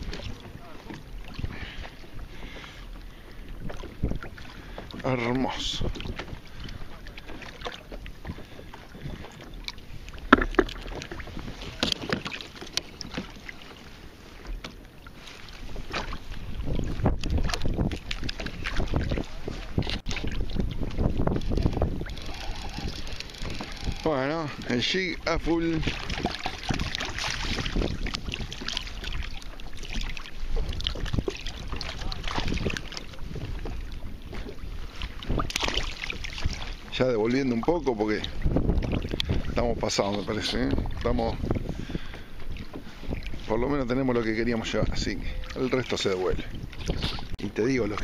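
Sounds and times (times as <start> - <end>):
water noise: 0.0 - 48.0
wind: 0.0 - 48.0
fish splashing at water surface: 25.8 - 33.2, 35.2 - 36.8.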